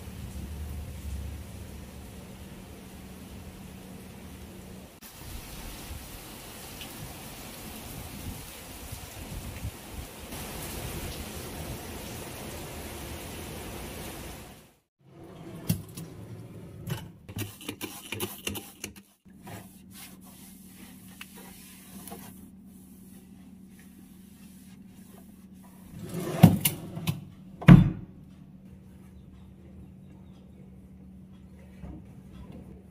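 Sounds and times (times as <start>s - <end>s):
rain hiss: 0.0s - 14.9s
cloth wiping inside cabinet: 16.3s - 26.6s.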